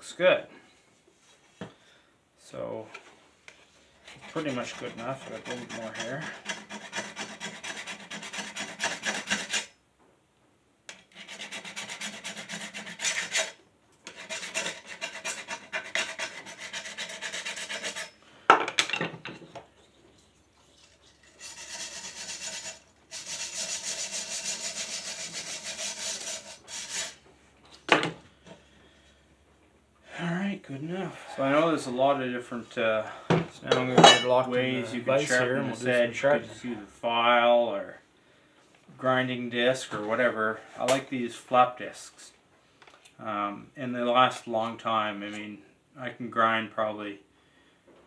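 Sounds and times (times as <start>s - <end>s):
brush scrubbing metal blade: 4.0s - 9.7s, 10.9s - 18.2s, 20.2s - 27.2s.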